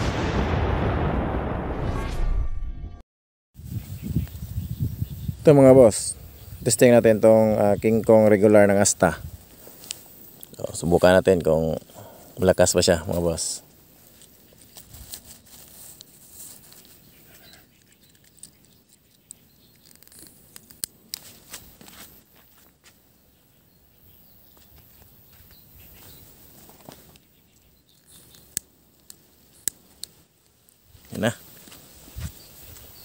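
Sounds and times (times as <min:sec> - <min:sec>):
rustling in grass: 0:08.7 - 0:10.4, 0:12.8 - 0:18.6, 0:21.1 - 0:23.0, 0:30.1 - 0:33.0.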